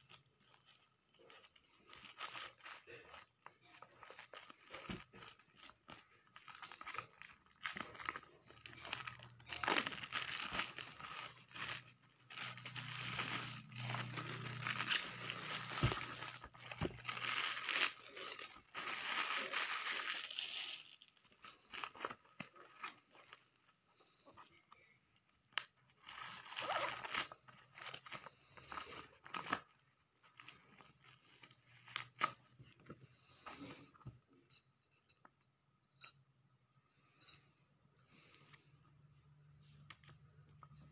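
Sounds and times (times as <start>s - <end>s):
plastic wrapping crinkling: 0.0s - 23.8s, 25.5s - 32.9s.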